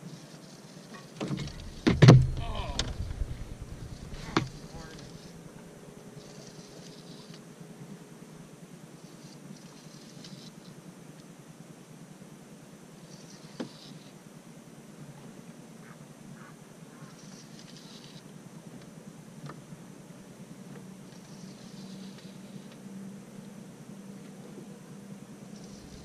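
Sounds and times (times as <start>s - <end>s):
sharp knock: 1.4s - 5.0s.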